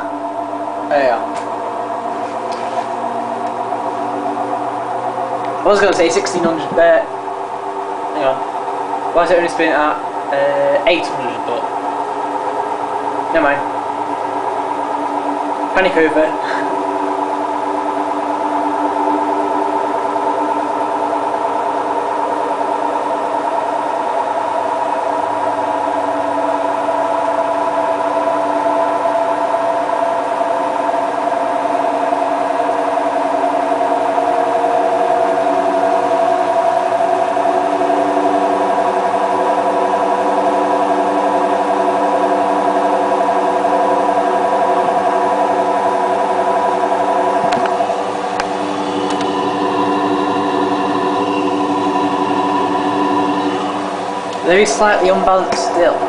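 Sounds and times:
washing machine spin whine: 0.0s - 56.0s.

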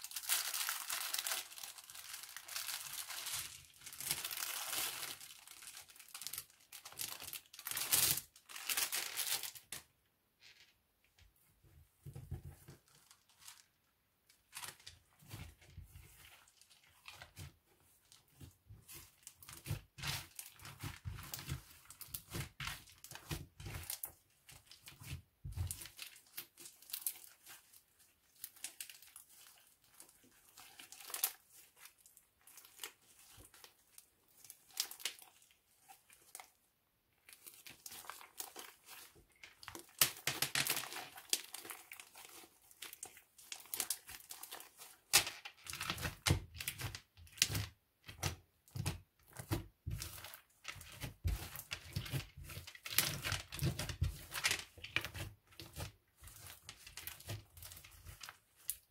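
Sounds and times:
slime crackling and popping: 37.2s - 58.9s.

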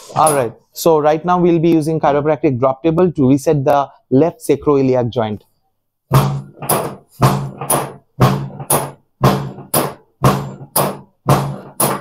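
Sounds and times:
sharp knocks in pairs: 6.1s - 12.0s.

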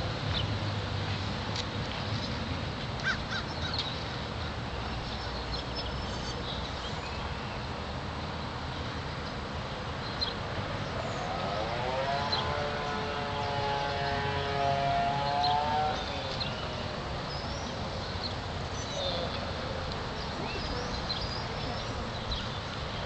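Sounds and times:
rush of wind or distant traffic: 0.0s - 23.0s
long rising tone: 10.6s - 17.0s.

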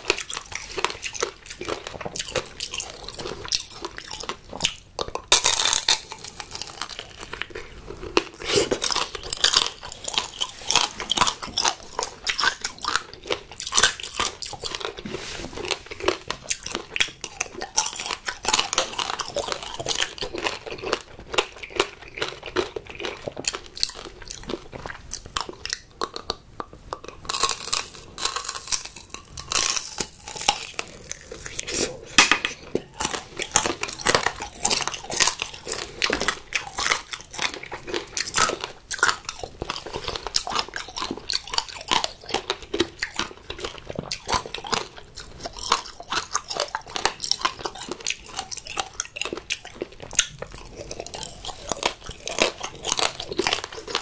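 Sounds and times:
candy shell crunching: 0.0s - 54.0s
chewing: 0.0s - 54.0s.

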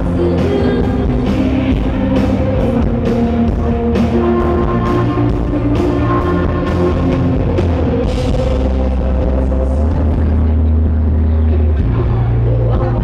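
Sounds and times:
live indie rock band: 0.0s - 13.0s.

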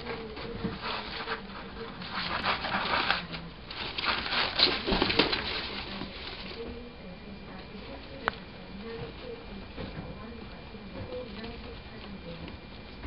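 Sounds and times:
plastic leaves rustling on newspaper: 0.0s - 6.9s.

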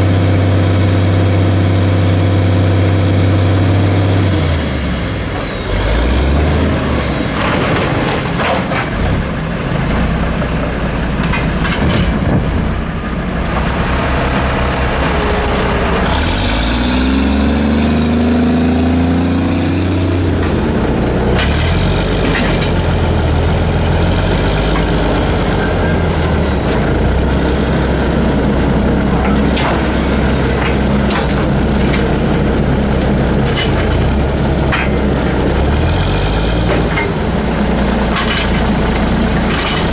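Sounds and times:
garbage truck diesel engine: 0.0s - 39.9s
mechanical arm knocks and clanks: 11.2s - 12.8s, 29.0s - 32.3s.

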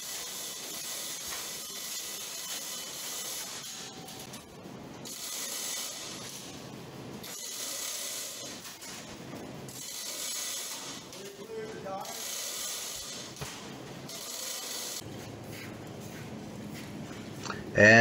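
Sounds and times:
chain hoist ratcheting and rattling: 7.2s - 9.0s, 9.7s - 13.4s, 14.1s - 15.0s.

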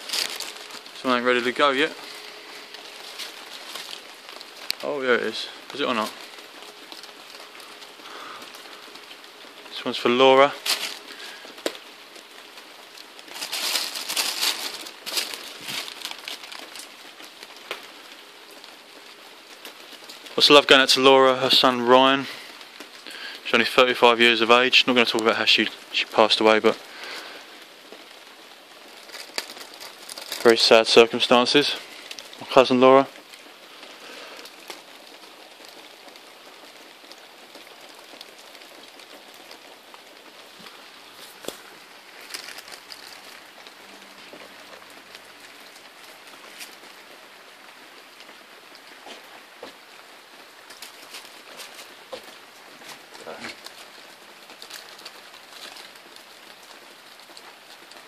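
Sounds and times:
burning fuel hissing: 0.0s - 36.7s, 48.2s - 54.3s
faint crackles: 0.0s - 58.0s
paper crinkling and rustling: 0.0s - 58.0s.

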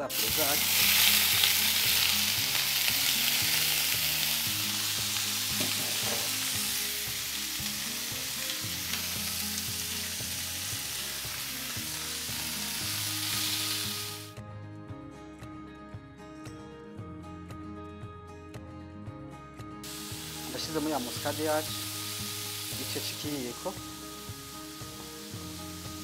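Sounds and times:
chicken sizzling in hot oil: 0.0s - 14.3s, 19.8s - 26.0s.

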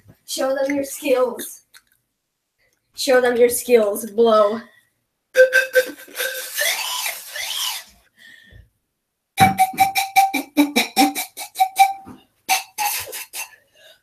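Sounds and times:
pan flute: 5.4s - 7.9s, 9.4s - 13.5s.

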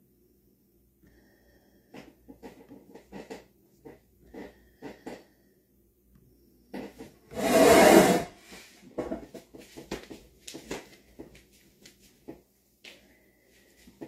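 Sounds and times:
handling noise rubbing and knocks: 1.9s - 5.2s, 6.7s - 12.5s.

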